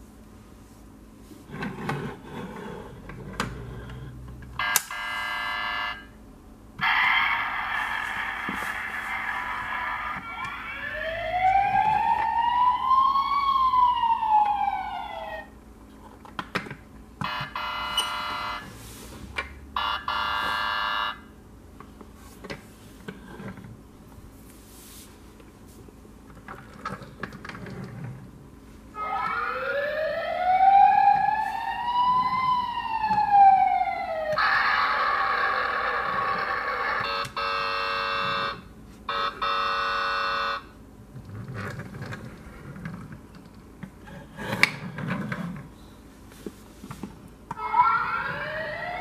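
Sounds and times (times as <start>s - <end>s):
electronic alarm tone: 4.6s - 6.1s, 17.2s - 18.7s, 19.8s - 21.2s, 36.7s - 40.7s
toy siren wail: 6.8s - 15.5s, 17.2s - 18.6s, 19.8s - 21.2s, 29.0s - 40.6s, 47.6s - 49.0s.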